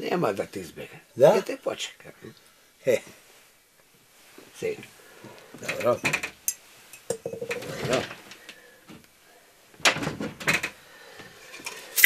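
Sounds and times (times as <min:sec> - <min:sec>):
clay pot rattling: 0:05.6 - 0:08.2.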